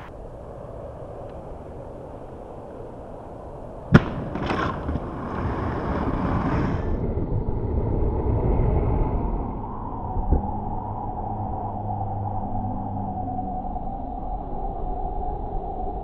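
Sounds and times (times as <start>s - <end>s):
skate wheels rolling on asphalt: 0.0s - 9.4s
skates slapping pavement: 3.9s - 7.0s.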